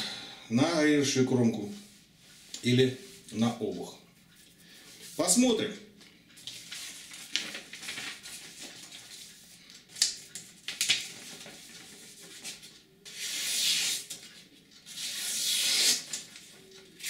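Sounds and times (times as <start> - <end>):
paper rustling: 6.4 - 17.0
knife slicing paper: 13.1 - 14.2, 14.9 - 16.3.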